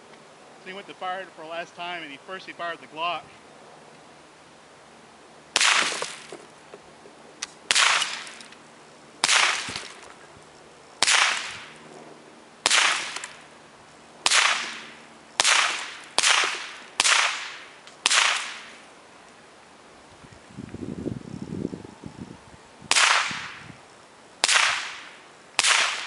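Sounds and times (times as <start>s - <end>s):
gunshots: 5.6s - 6.3s, 7.7s - 8.4s, 9.2s - 10.0s, 11.0s - 11.8s, 12.6s - 13.4s, 14.2s - 18.8s, 24.4s - 26.0s.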